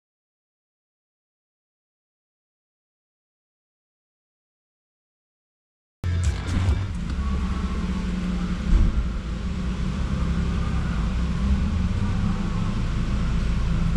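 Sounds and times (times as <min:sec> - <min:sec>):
car engine idling: 0:06.0 - 0:13.9.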